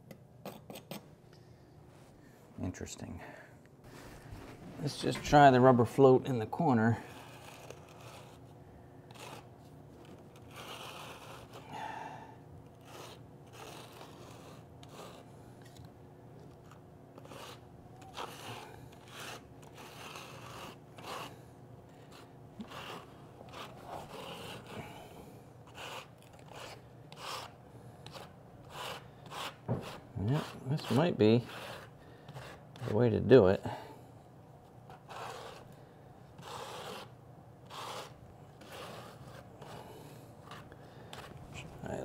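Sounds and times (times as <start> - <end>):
grout float scraping: 6.9 - 8.4, 10.1 - 11.6, 12.8 - 15.8, 17.2 - 25.0, 25.7 - 33.3, 34.9 - 35.7, 36.4 - 42.0.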